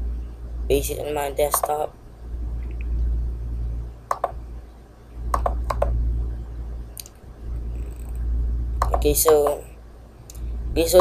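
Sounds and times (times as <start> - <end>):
steady low hum: 0.0 - 11.0
touchpad button clicks: 5.4 - 5.9.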